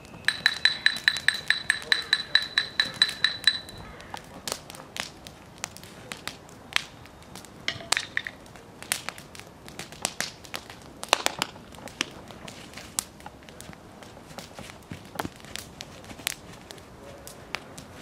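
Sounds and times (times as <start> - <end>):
wood fire crackling and popping: 0.0 - 18.0.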